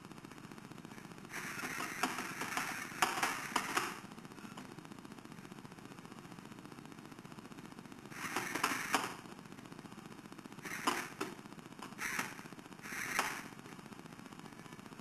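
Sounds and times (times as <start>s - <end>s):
plastic gears and legs clattering: 1.3s - 4.0s, 8.2s - 9.2s, 10.6s - 11.4s, 12.0s - 13.5s.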